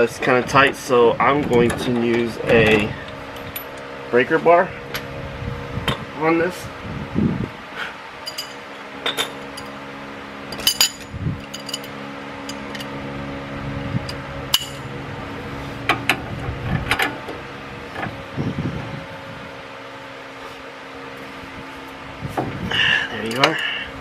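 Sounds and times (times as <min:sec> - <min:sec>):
steady background hum: 0:00.0 - 0:24.0
metal hand tools clinking: 0:08.3 - 0:08.6, 0:10.5 - 0:11.9.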